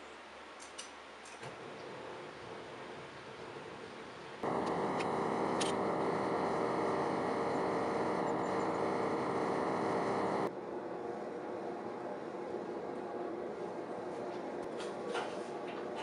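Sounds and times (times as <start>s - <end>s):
forge burner rushing: 4.4s - 10.5s.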